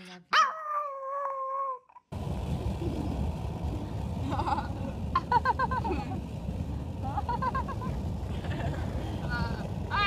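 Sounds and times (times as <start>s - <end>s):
car wind and road noise: 2.1s - 10.0s
wavering whine: 2.2s - 10.0s.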